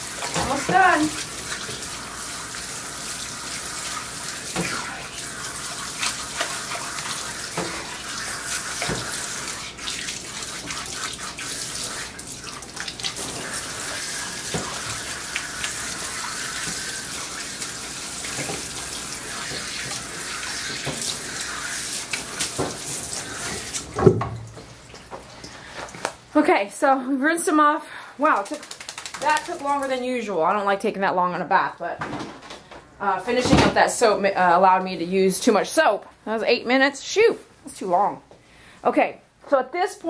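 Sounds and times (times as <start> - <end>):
water splashing into tub: 0.0 - 25.5, 28.2 - 30.0.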